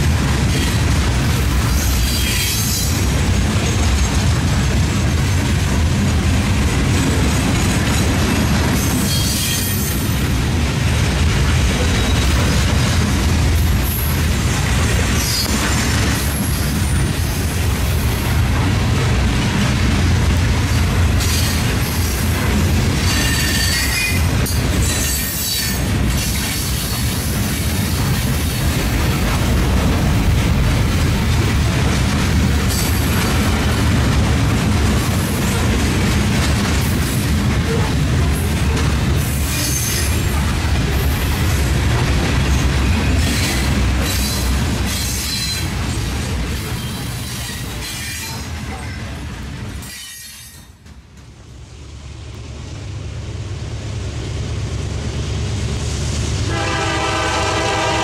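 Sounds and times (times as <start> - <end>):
train wheels rumbling on rail: 0.0 - 58.0
train wheels squealing: 1.7 - 3.1, 8.8 - 10.2, 23.0 - 27.0, 39.4 - 40.4, 46.6 - 49.0, 49.8 - 50.8.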